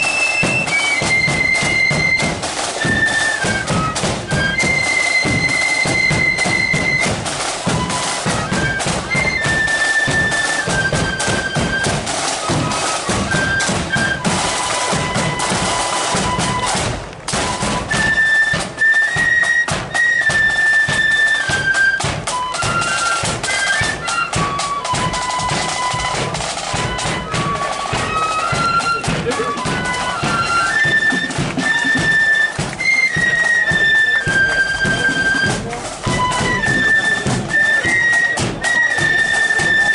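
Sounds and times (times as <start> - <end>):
flute band playing: 0.0 - 39.9
marching drums: 0.0 - 39.9.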